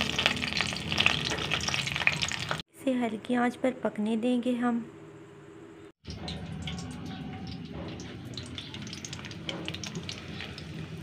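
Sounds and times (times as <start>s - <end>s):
leaves frying in oil: 0.0s - 2.6s, 6.0s - 11.0s.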